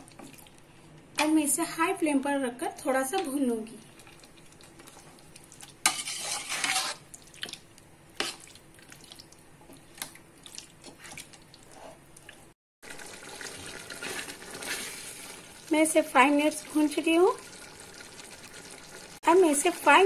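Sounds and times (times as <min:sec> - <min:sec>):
spoon squelching and scraping: 0:03.8 - 0:12.4.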